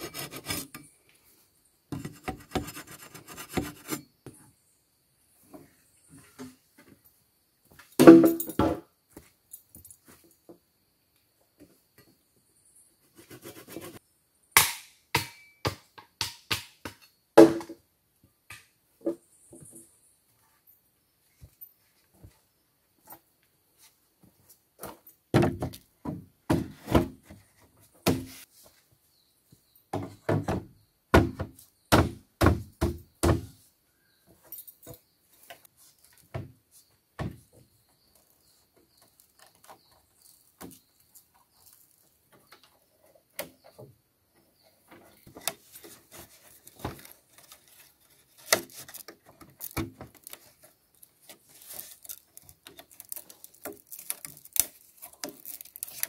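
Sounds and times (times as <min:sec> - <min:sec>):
rustling of lashing: 0:45.6 - 0:56.0.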